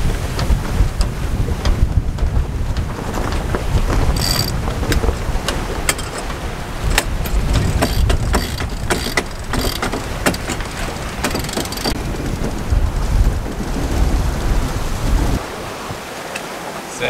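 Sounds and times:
wind buffeting microphone: 0:00.0 - 0:16.6
winch ratcheting clicks: 0:04.1 - 0:12.1.

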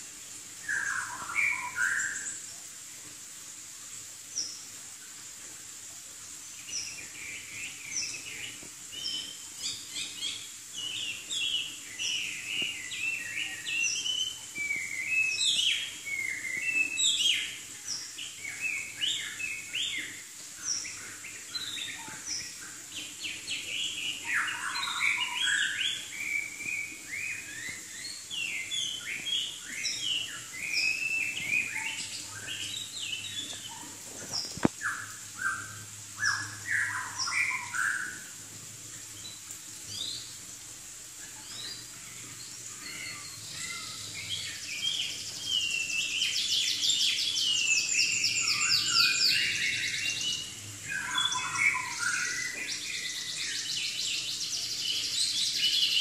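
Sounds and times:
bird singing whistled phrases: 0:24.1 - 0:33.8, 0:42.7 - 0:54.3.

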